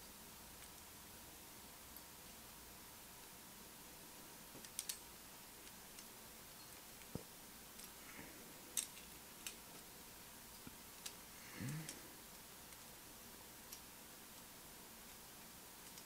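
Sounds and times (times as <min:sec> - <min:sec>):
faint plastic clicks: 0:04.6 - 0:05.0, 0:13.6 - 0:16.0.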